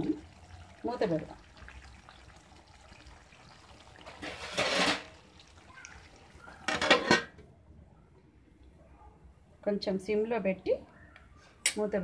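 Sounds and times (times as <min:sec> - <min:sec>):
curry simmering in pan: 0:00.0 - 0:06.7
metal lid clanking on pan: 0:06.7 - 0:07.4.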